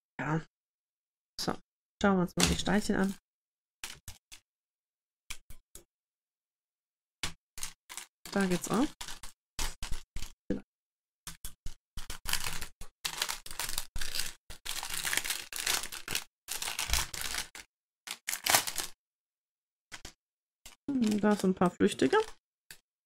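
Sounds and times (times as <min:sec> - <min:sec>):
plastic packaging crinkling: 0:07.6 - 0:10.3, 0:12.0 - 0:19.0, 0:20.9 - 0:22.4.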